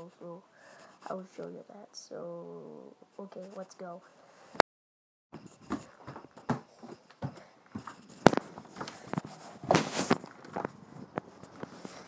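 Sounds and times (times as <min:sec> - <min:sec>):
footsteps on indoor floor: 0:05.4 - 0:12.0.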